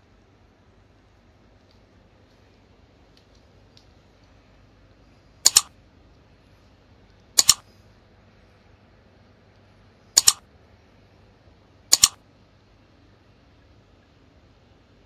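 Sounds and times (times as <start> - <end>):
faint background hiss: 0.0 - 15.0
mouse double clicks: 5.4 - 5.7, 7.4 - 7.6, 10.2 - 10.4, 11.9 - 12.2.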